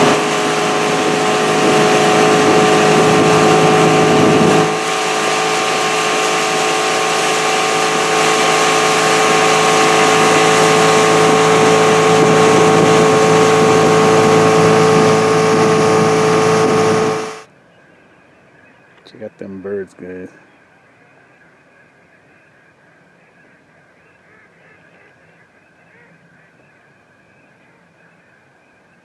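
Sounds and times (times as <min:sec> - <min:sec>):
motorboat engine running: 0:00.0 - 0:17.5
water rushing off hull: 0:00.0 - 0:17.5.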